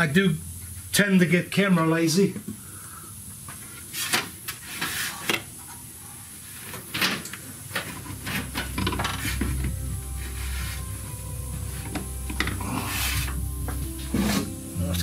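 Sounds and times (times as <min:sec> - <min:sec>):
low steady hum: 0:00.0 - 0:03.8, 0:07.3 - 0:15.0.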